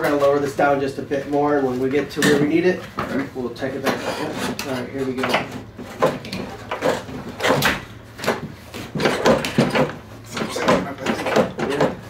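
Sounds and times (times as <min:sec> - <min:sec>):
metal chassis clunks and rattles: 0:04.6 - 0:12.0.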